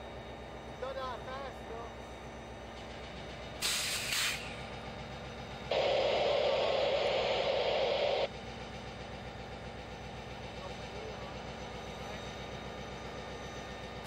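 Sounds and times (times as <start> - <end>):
locomotive air hissing: 3.5 - 4.8.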